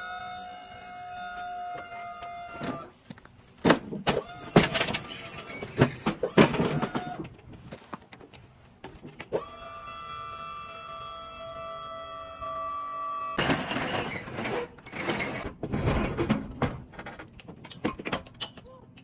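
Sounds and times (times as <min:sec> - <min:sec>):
hydraulic pump motor whining: 0:00.0 - 0:03.0, 0:04.0 - 0:07.3, 0:09.3 - 0:15.4
metal platform clanking and banging: 0:13.4 - 0:18.4.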